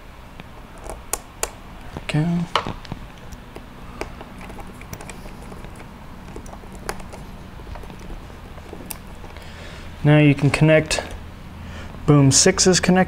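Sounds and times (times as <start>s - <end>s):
low steady hum: 0.0s - 13.0s
wires and plastic connectors clicking: 0.4s - 9.5s.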